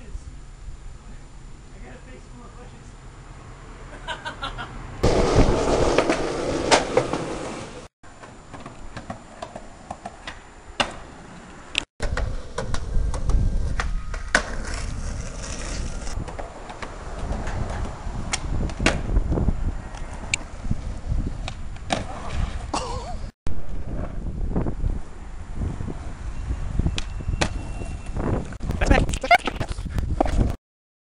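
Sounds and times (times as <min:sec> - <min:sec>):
skateboard wheels rolling on pavement: 0:04.8 - 0:28.6
skateboard popping and landing: 0:05.0 - 0:11.4, 0:12.0 - 0:19.2, 0:21.4 - 0:22.7.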